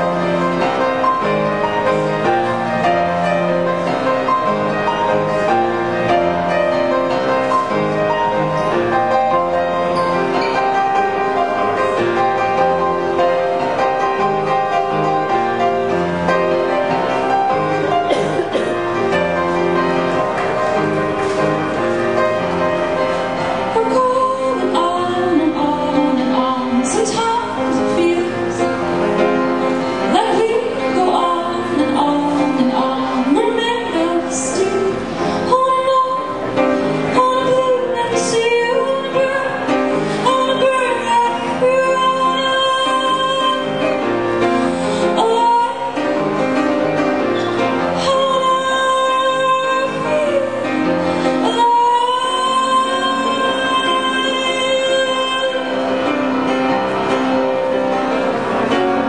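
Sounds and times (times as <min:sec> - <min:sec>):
grand piano: 0:00.0 - 0:59.0
woman singing: 0:23.7 - 0:28.7, 0:30.1 - 0:44.1, 0:45.0 - 0:46.4, 0:47.9 - 0:55.8.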